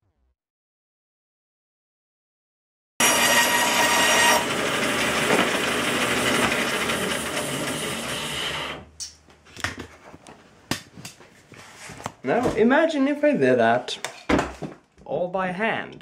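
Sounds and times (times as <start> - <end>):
bandsaw cutting wood: 3.0 - 8.8.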